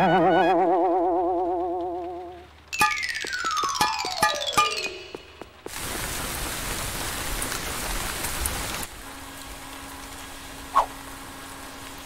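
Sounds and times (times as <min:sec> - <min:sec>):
low steady hum: 0:00.0 - 0:03.5
pouring rain: 0:01.2 - 0:12.0.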